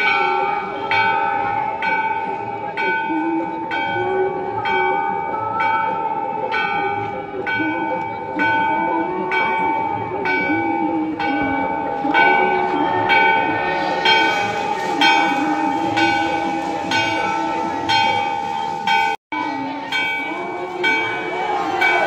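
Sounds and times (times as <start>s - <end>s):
temple bell ringing: 0.0s - 22.0s
voices chanting: 19.6s - 22.0s.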